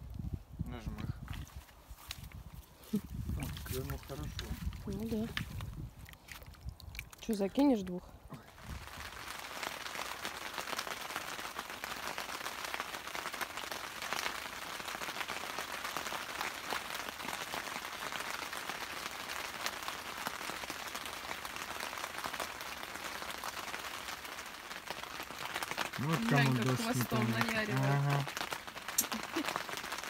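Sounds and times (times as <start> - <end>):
rain pattering on a tarp: 0.0 - 30.0.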